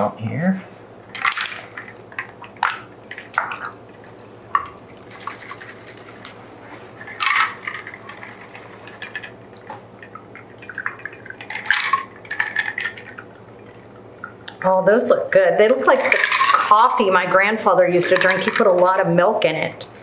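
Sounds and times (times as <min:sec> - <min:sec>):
liquid trickling into glass: 0:07.0 - 0:14.6.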